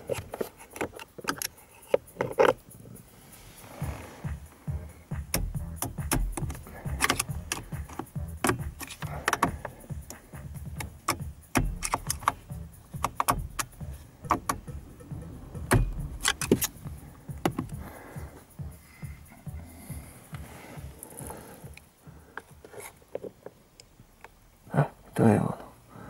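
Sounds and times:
hand tools clicking and clattering: 0.0s - 23.6s
dull knocks: 13.0s - 17.9s.

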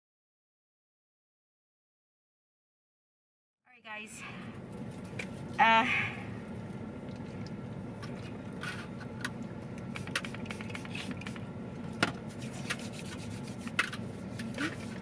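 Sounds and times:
vehicle cabin hum: 3.7s - 15.0s.

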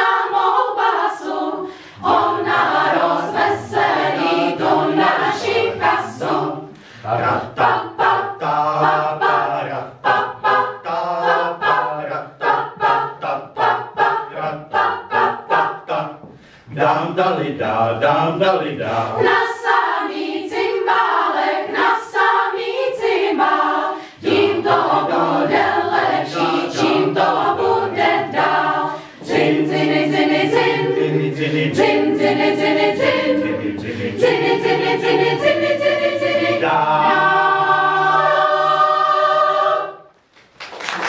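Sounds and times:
mixed choir singing a cappella: 0.0s - 40.2s.

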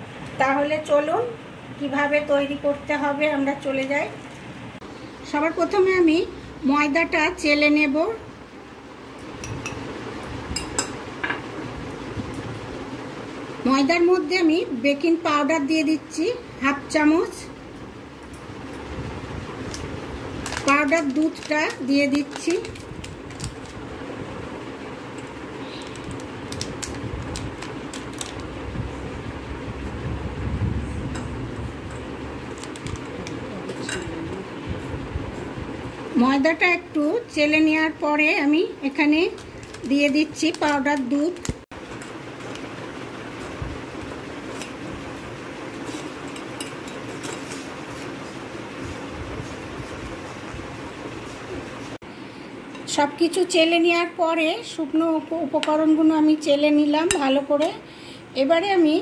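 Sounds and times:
steady hum: 0.0s - 59.0s.

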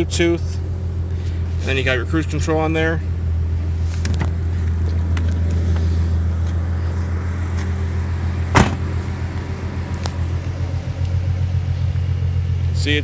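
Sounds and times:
car engine idling: 0.0s - 13.0s
car door shutting: 8.5s - 9.0s.

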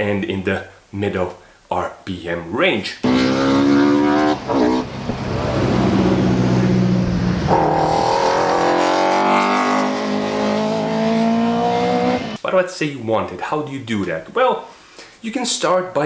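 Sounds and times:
race car engine revving high: 3.0s - 12.4s.

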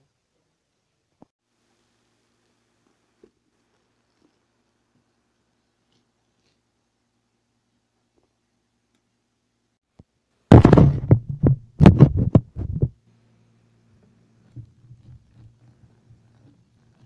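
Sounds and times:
microphone handling knocks: 10.5s - 13.0s.

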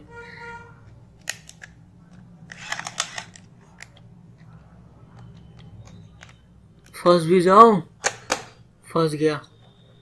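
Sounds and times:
film handling clicks and scrapes: 1.2s - 4.1s.

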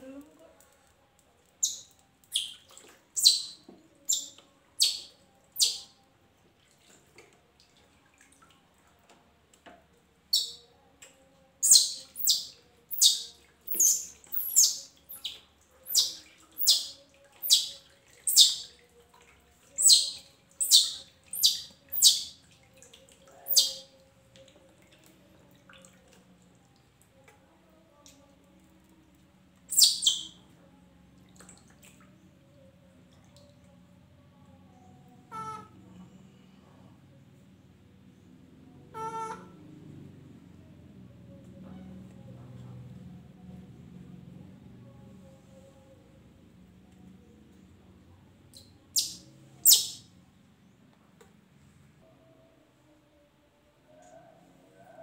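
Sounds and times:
faint water splashing: 0.0s - 52.8s
baby monkey shrill cries: 3.2s - 5.9s, 11.6s - 17.7s, 18.3s - 18.6s, 19.8s - 22.3s, 23.5s - 23.9s, 29.7s - 30.2s, 49.0s - 50.0s.

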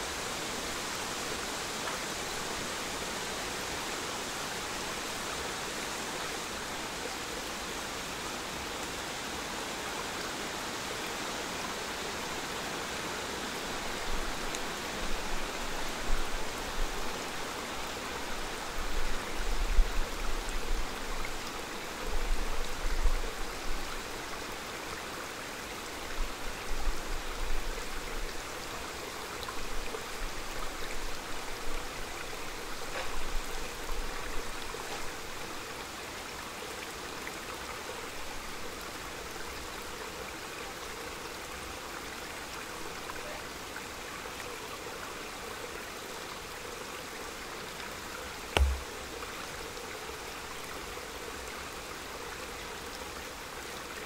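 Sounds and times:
stream running: 0.0s - 54.0s
brief thump: 48.6s - 48.9s.

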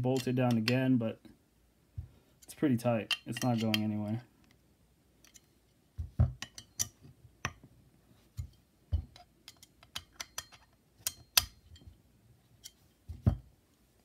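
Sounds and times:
metal parts clicking and knocking: 9.0s - 11.8s.

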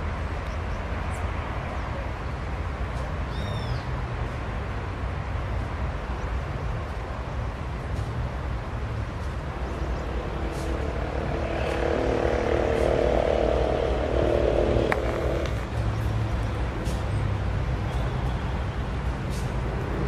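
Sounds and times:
mid-pitched engine hum: 0.0s - 20.0s
locomotive engine rumble: 7.2s - 20.0s.

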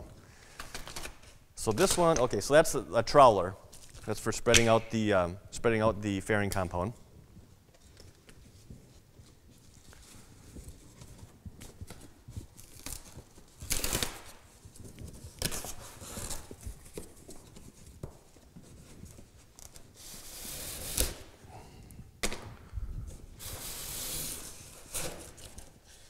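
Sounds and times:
packing tape ripping off cardboard: 9.7s - 21.4s, 23.4s - 26.0s.

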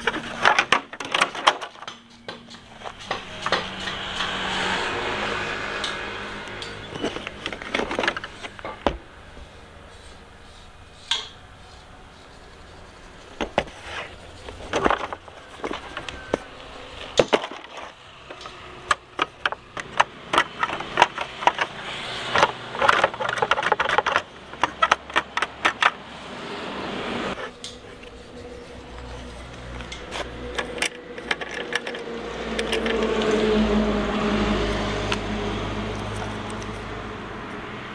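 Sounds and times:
knocks and clicks of tools: 0.0s - 9.2s, 14.4s - 26.2s, 28.9s - 33.8s.

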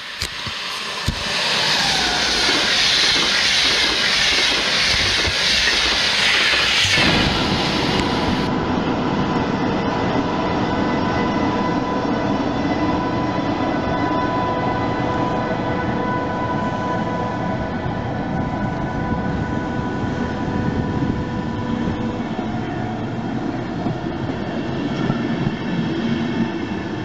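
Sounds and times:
train wheels rumbling: 0.0s - 14.9s
train passing at speed: 0.0s - 27.0s.

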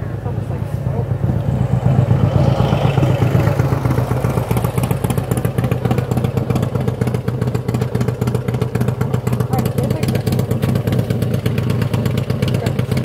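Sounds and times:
vehicle engine running: 0.0s - 13.0s
fast rattling: 3.0s - 13.0s.

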